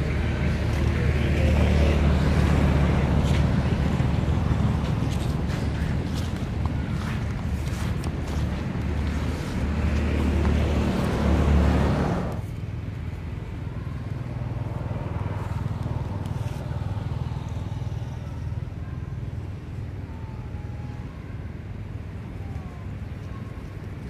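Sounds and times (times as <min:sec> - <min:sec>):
low vehicle engine hum: 0:00.0 - 0:24.0.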